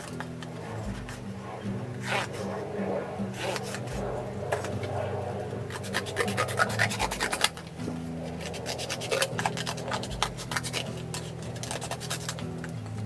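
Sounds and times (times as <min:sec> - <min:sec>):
scissors cutting cardboard: 0:08.4 - 0:12.6.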